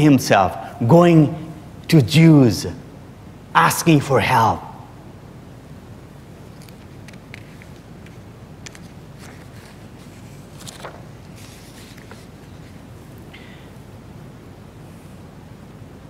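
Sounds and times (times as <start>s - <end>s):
faint rustles: 6.5s - 13.8s.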